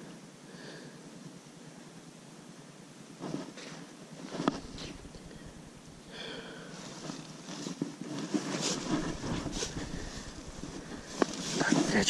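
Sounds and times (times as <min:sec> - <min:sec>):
tall grass rustling and swishing: 0:04.3 - 0:12.0.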